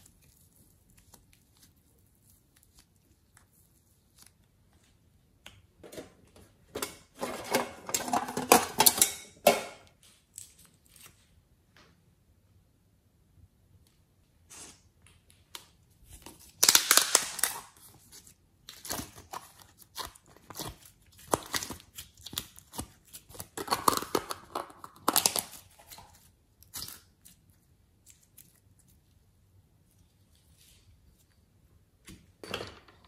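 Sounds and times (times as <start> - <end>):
plastic cup crackling: 16.2 - 26.2.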